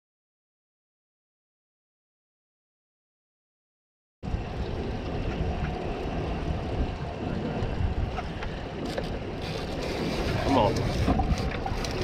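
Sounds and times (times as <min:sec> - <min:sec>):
wind buffeting the microphone: 0:04.2 - 0:12.0
water slapping against boat hull: 0:08.1 - 0:12.0.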